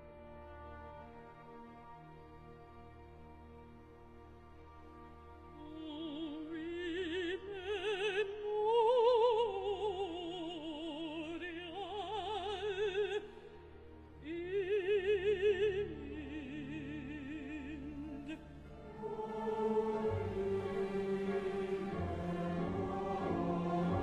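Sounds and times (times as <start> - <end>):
soft orchestra: 0.0 - 24.0
woman singing opera with vibrato: 5.6 - 13.5, 14.2 - 24.0.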